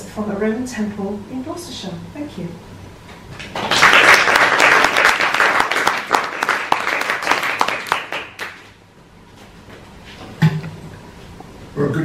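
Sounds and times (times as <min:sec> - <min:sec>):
audience applauding: 0:03.4 - 0:08.7.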